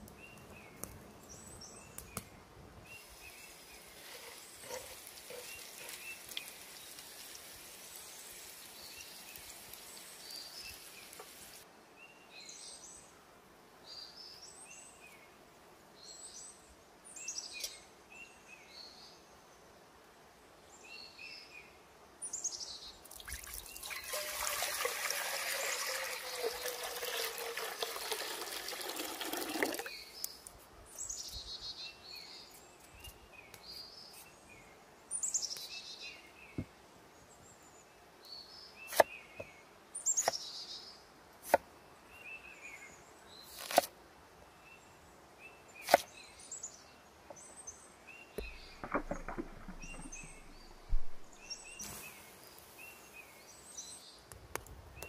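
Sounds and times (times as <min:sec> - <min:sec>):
small birds chirping: 0:00.0 - 0:13.1, 0:29.4 - 0:43.8, 0:44.4 - 0:55.0
hot oil sizzling in a skillet: 0:03.0 - 0:11.6
water poured into a pot: 0:23.1 - 0:30.0.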